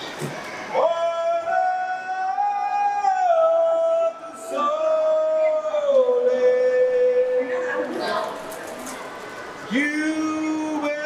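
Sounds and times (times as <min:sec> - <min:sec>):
man singing long notes: 0:00.7 - 0:07.7, 0:09.7 - 0:11.0.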